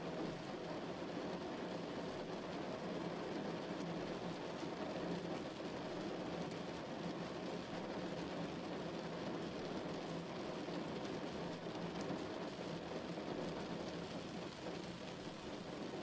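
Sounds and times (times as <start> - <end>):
steady rain: 0.0 - 16.0.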